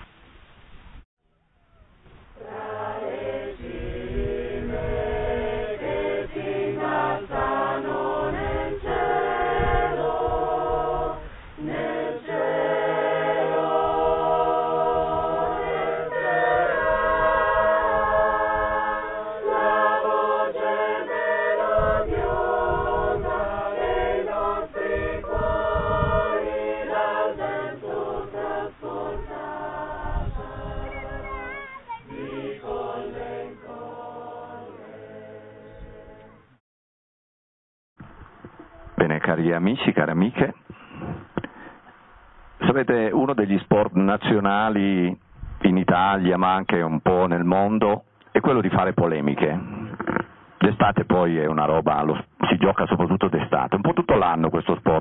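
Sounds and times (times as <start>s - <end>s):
choir singing a hymn: 2.3s - 36.5s.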